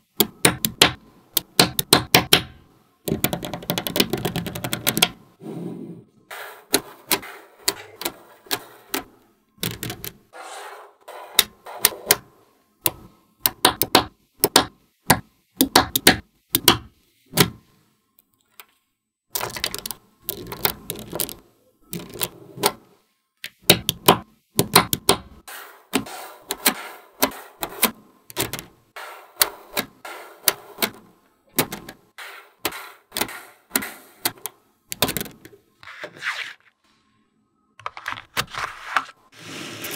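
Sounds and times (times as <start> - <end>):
magnetic balls clicking together: 0.2 - 5.2, 6.7 - 10.2, 12.8 - 17.5, 19.3 - 22.3, 32.6 - 35.6.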